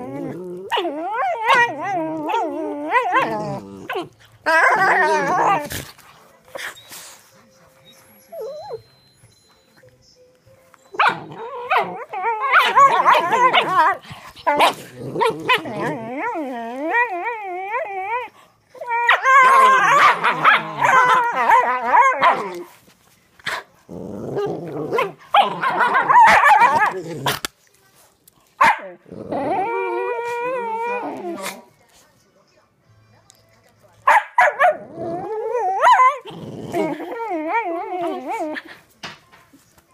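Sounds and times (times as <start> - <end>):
dogs growling in play: 0.0 - 6.9, 11.1 - 22.8, 23.4 - 27.5, 28.8 - 31.7, 34.7 - 38.9.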